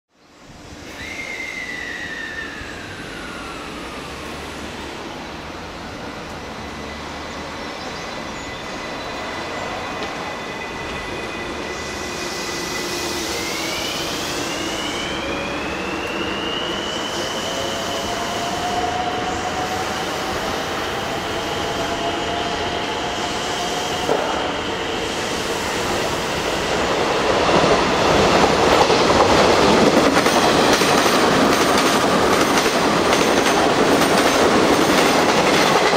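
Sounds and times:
electric train passing at speed: 0.3 - 35.9
rumble of wheels on rail: 17.7 - 35.9
loud clatter of train cars: 24.0 - 35.9.

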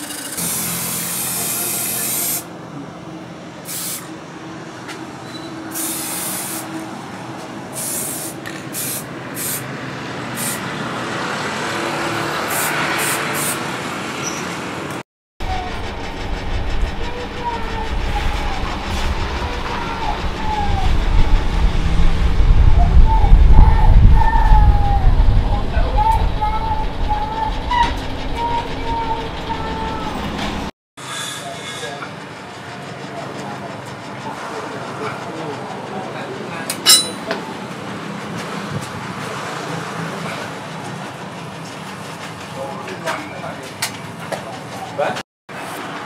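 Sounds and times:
spray can hissing: 0.4 - 2.5, 3.7 - 4.1, 5.7 - 6.7, 7.8 - 9.7, 10.4 - 10.6, 12.5 - 13.6
low rumble: 15.4 - 30.7.

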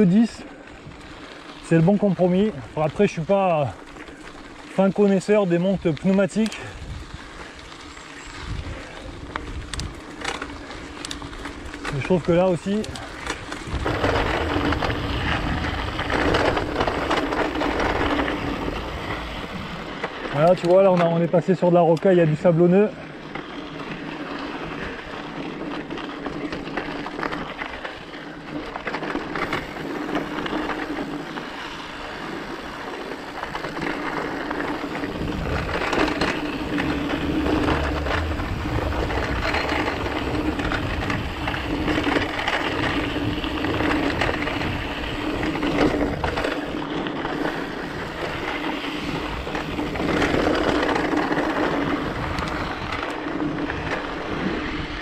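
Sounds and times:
bike tyres crunching over stones: 0.0 - 55.0
low rumble: 34.6 - 46.3.

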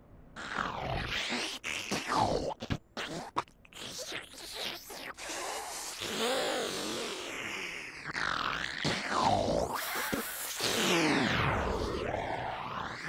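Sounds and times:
cartoon vacuum cleaner sucking: 3.8 - 12.9.

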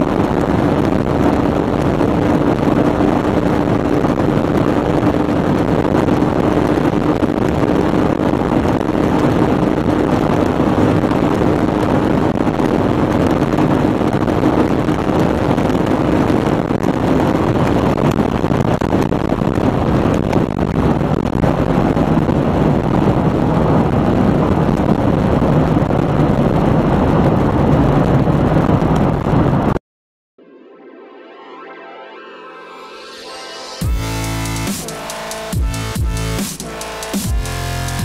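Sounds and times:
wind and road roar in car: 0.0 - 29.8.

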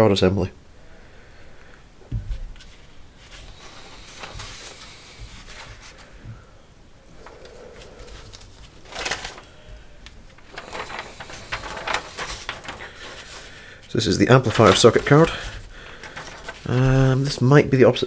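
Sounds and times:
paper rustling: 2.6 - 6.2, 7.2 - 17.5.

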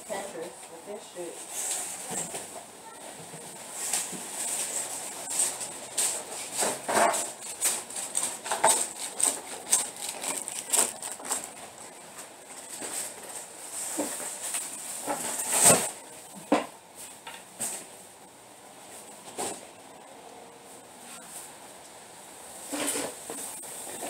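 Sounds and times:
shopping bags rustling: 3.4 - 16.0.

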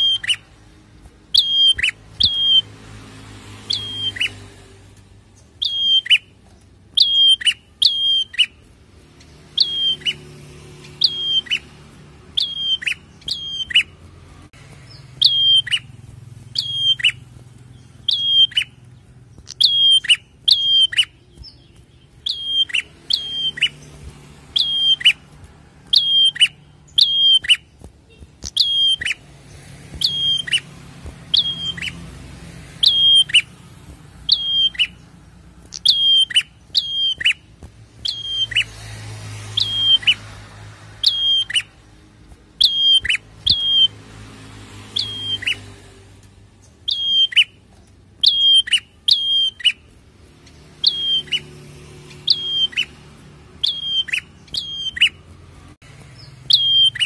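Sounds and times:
bird calling with downward whistles: 0.0 - 0.5, 1.4 - 2.7, 3.7 - 4.4, 5.6 - 6.3, 6.9 - 8.6, 9.5 - 10.3, 10.9 - 11.7, 12.4 - 14.0, 14.9 - 15.9, 16.5 - 18.8, 19.4 - 23.9, 24.6 - 25.2, 25.9 - 29.2, 30.0 - 30.7, 31.3 - 32.1, 32.8 - 33.5, 34.2 - 35.1, 35.7 - 38.7, 39.5 - 40.2, 41.0 - 41.7, 42.6 - 44.0, 44.9 - 45.7, 46.7 - 47.6, 48.2 - 49.9, 50.7 - 53.0, 53.6 - 55.2, 56.2 - 57.0.

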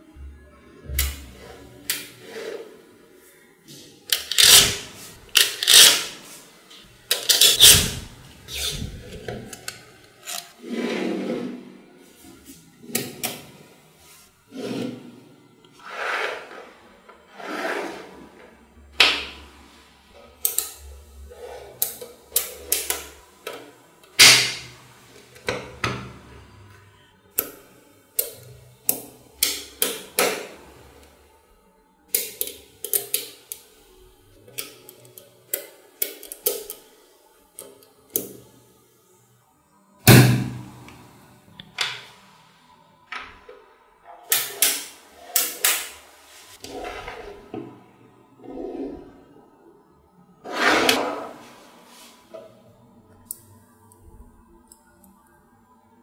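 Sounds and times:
balls rubbing and sliding: 1.2 - 20.2, 45.9 - 49.5, 50.4 - 52.8.

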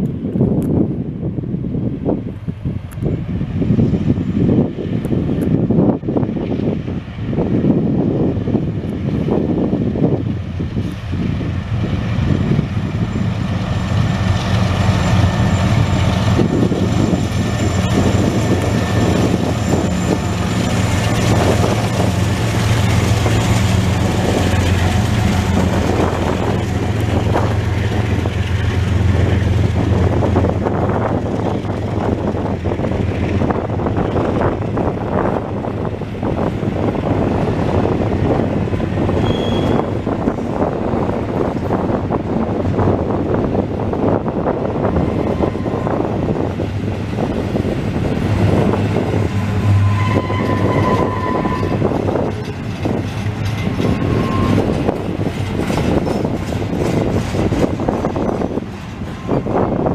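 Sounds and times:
diesel locomotive engine drone: 0.0 - 59.9
train wheels clattering on rails: 8.8 - 43.3, 44.0 - 59.9
short high squeal: 39.2 - 40.0, 49.6 - 51.9, 53.9 - 54.8.

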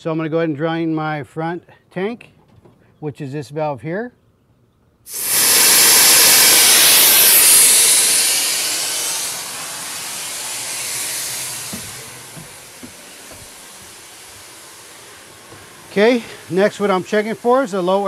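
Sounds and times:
compressed air hissing: 5.1 - 18.0.

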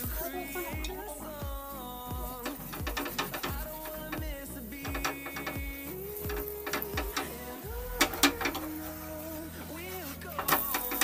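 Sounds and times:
background music with beat: 0.0 - 11.0
deep kick drum: 0.8 - 6.4.

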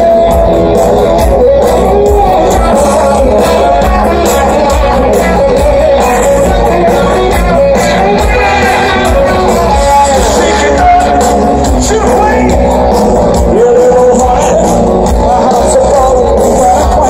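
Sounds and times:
live rock band playing: 0.0 - 17.0
man singing: 0.0 - 17.0.

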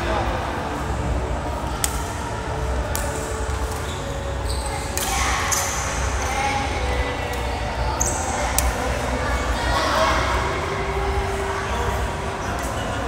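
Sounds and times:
rackets striking shuttlecock: 1.7 - 2.2, 2.8 - 4.0, 4.9 - 5.8.

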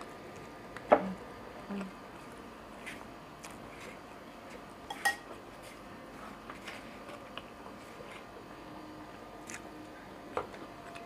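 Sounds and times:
cutlery clinking on plate: 4.9 - 5.3.

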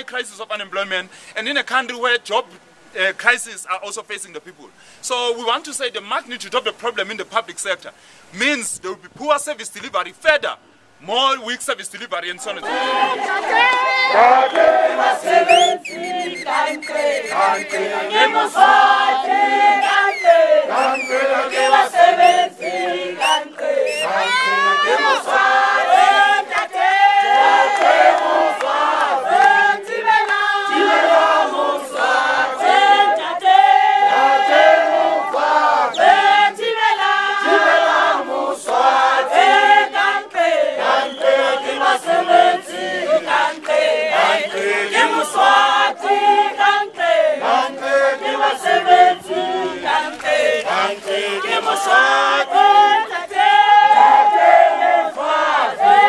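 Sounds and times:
crowd singing together: 12.4 - 56.0
hand claps: 14.5 - 14.8, 27.7 - 29.6, 30.2 - 30.4, 43.5 - 43.8, 44.5 - 44.7, 50.0 - 52.0.

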